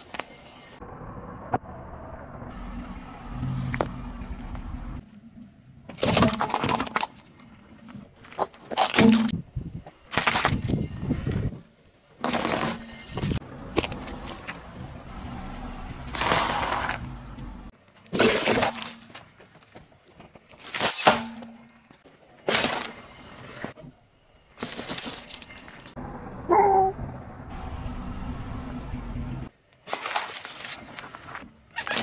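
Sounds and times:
short squeak: 31.7s - 32.0s.

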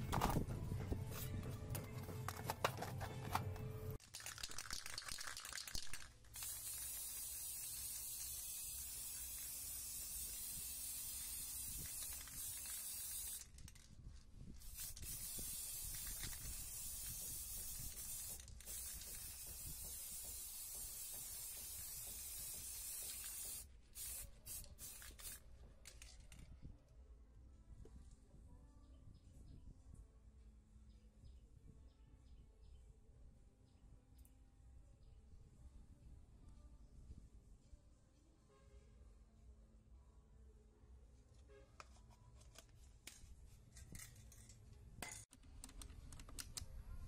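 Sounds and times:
spray paint can hissing: 4.0s - 13.9s, 14.6s - 26.2s.

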